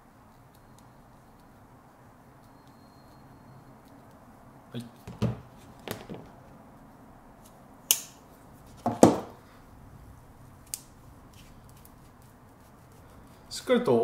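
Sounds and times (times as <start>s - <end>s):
knocks on a work board: 5.1s - 6.3s, 8.8s - 9.3s.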